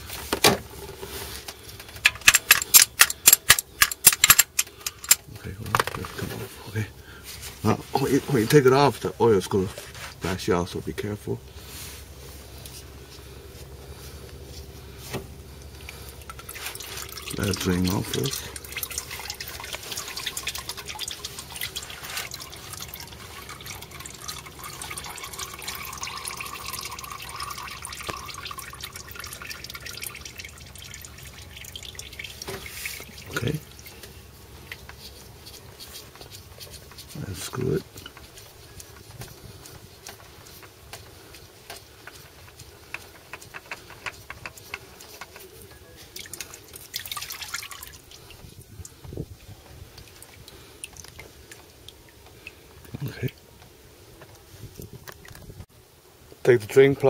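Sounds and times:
oil trickling and dripping: 0.0 - 55.7
oil filter unscrewing clicks: 1.8 - 5.3, 42.0 - 45.5.

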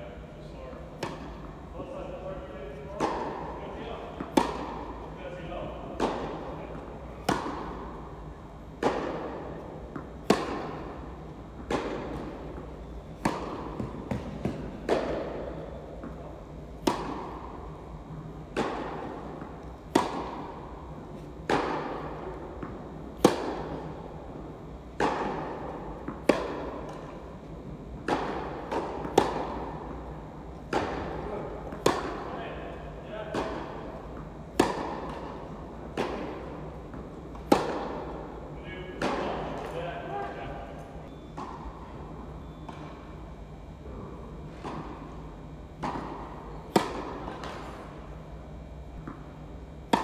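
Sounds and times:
racquet hitting tennis ball: 0.8 - 40.4, 41.1 - 41.8, 43.9 - 48.2
ball bouncing on court: 11.6 - 16.2.

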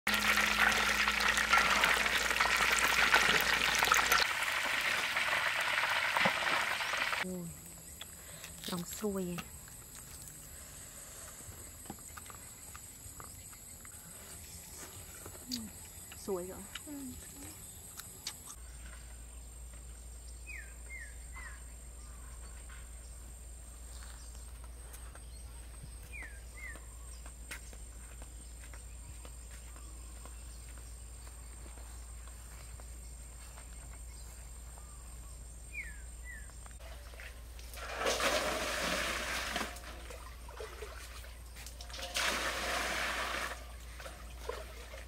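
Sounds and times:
chicken deep-frying in oil: 0.1 - 7.3.

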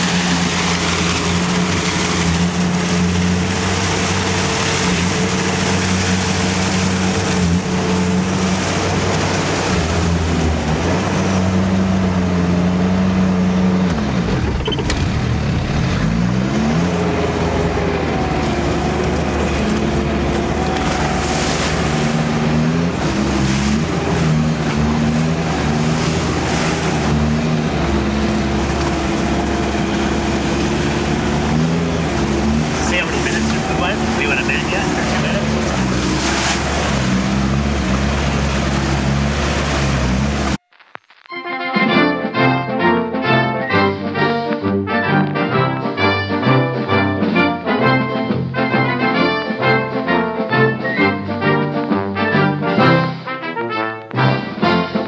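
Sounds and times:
diesel engine running under load: 0.0 - 40.6.

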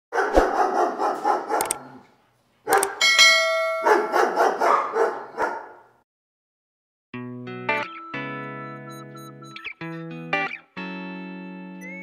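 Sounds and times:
hounds baying and barking: 0.2 - 2.1, 2.7 - 3.1, 3.7 - 5.8
bell-like chime: 3.0 - 4.2.

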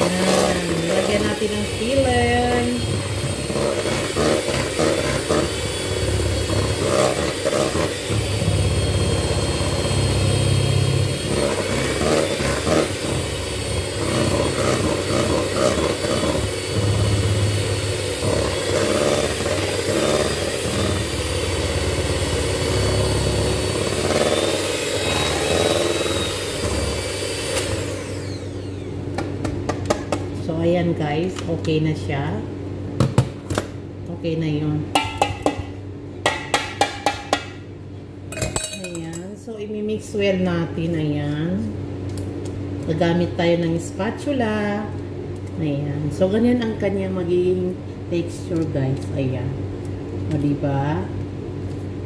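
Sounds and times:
electric hand mixer whirring: 0.0 - 29.6.

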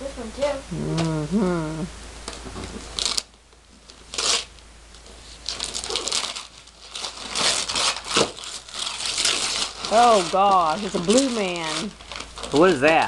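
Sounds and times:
wrapping paper tearing: 2.9 - 13.0.

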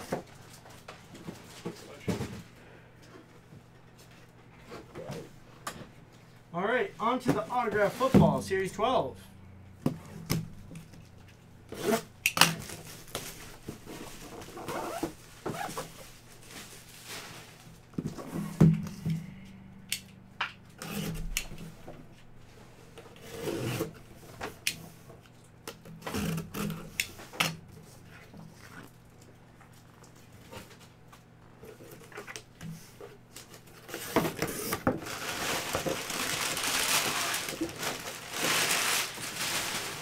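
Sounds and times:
wrapper and cardboard rustling: 10.6 - 18.6, 33.4 - 40.0.

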